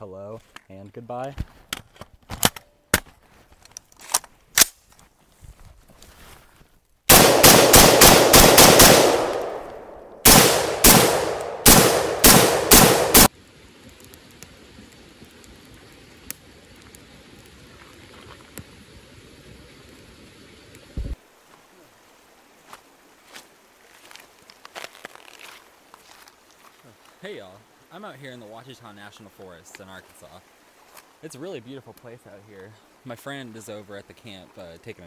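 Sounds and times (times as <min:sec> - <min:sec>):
rapid gunfire with echo: 0:07.1 - 0:13.3.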